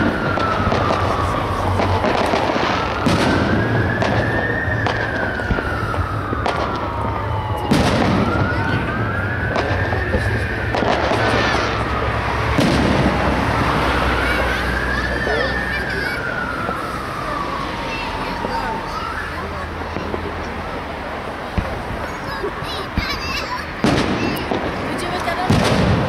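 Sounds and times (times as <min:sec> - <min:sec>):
siren wailing: 0:00.0 - 0:20.9
fireworks bursting with bangs: 0:00.0 - 0:26.0
firework pops and crackle: 0:09.4 - 0:11.8, 0:22.9 - 0:26.0.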